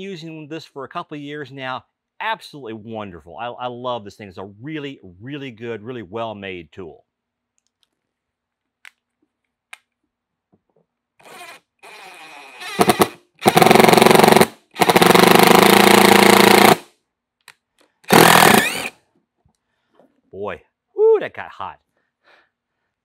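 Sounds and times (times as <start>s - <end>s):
impact driver whirring: 11.2s - 16.8s, 18.1s - 19.0s
impact driver hammering: 12.7s - 16.9s, 18.1s - 18.9s.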